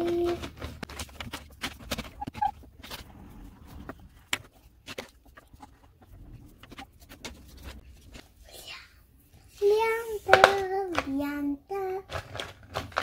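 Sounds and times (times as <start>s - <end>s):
crayons rattling in a jar: 0.0s - 8.3s, 9.7s - 13.0s
crayons scraping on paper: 0.0s - 8.4s, 9.5s - 11.2s.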